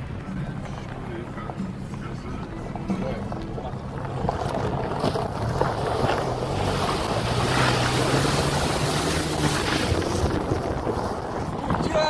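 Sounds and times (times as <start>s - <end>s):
vehicle engine running: 0.0s - 12.0s
water rushing and splashing: 3.8s - 11.7s.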